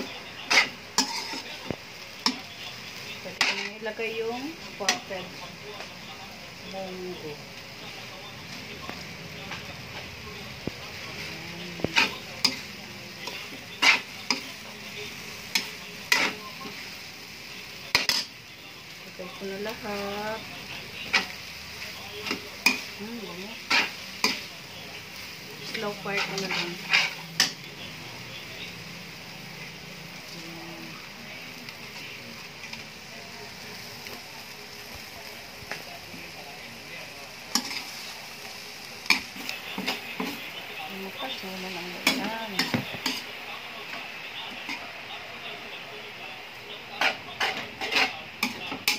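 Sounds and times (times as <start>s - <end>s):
spatula scraping metal wok: 0.0s - 1.6s, 2.2s - 5.3s, 9.9s - 17.1s, 19.4s - 28.5s, 37.5s - 38.2s, 39.0s - 45.0s, 46.8s - 48.9s
spatula stirring noodles in wok: 0.0s - 6.7s, 9.5s - 28.5s, 37.3s - 45.7s, 46.4s - 48.9s
steady sizzle: 0.0s - 48.9s.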